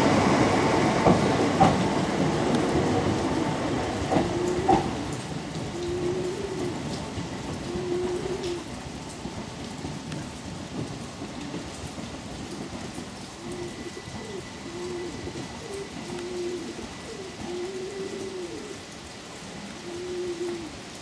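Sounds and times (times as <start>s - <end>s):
steady rain falling: 0.0s - 21.0s
pigeon cooing: 4.1s - 7.0s, 7.6s - 8.7s, 13.2s - 18.8s, 19.6s - 20.9s.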